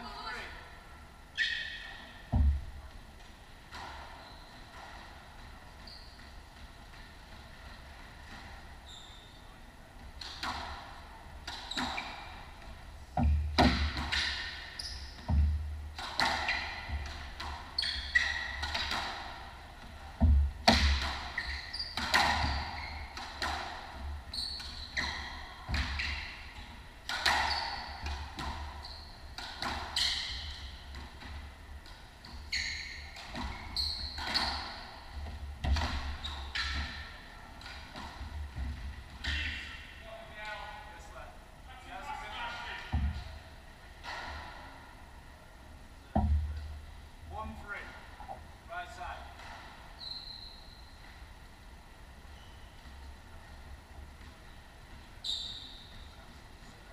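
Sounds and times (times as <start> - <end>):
squash ball hitting racquets and walls: 1.4 - 8.8, 10.0 - 40.0, 42.7 - 45.1, 46.0 - 47.0
shoes squeaking on wooden floor: 3.8 - 7.2, 8.2 - 9.6, 16.2 - 19.0, 21.2 - 23.5, 24.2 - 31.2, 32.2 - 37.4.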